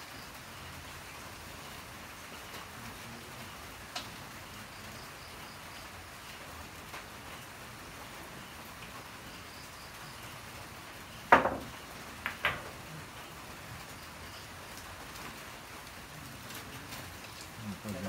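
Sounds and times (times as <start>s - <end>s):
cue striking ball: 11.3s - 12.7s
billiard balls knocking together: 11.3s - 12.8s.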